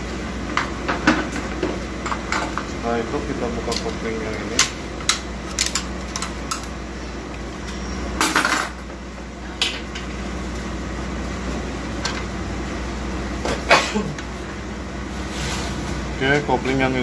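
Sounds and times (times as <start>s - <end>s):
steady low hum: 0.0s - 17.0s
metal parts clinking and scraping: 5.4s - 6.8s.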